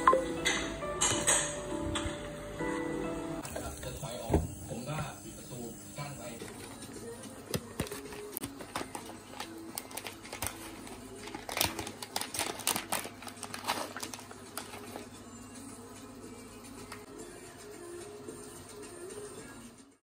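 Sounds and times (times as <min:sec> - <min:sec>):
plastic pouch crinkling: 0:07.9 - 0:15.1.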